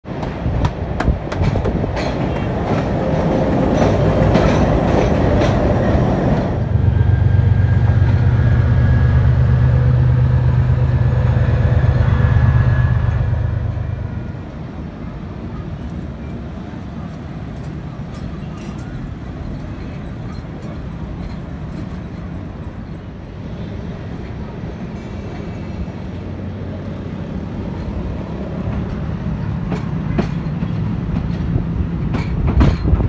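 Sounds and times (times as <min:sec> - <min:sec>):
train wheels clicking over rail joints: 0:00.1 - 0:06.6, 0:15.8 - 0:23.1, 0:27.2 - 0:33.0
diesel locomotive humming: 0:00.1 - 0:33.0.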